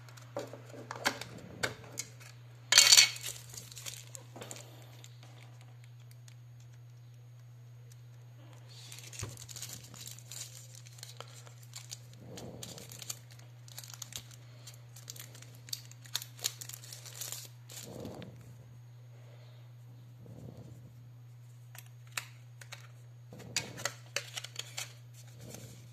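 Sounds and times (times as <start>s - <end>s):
plastic bag crinkling: 2.2s - 6.9s, 8.6s - 18.4s, 21.8s - 25.9s.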